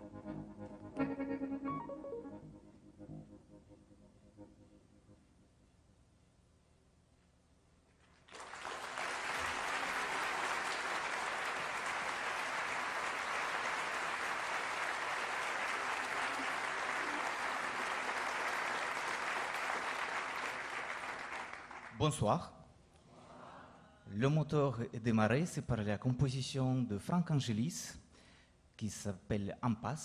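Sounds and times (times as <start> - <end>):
audience applauding: 8.0 - 22.0.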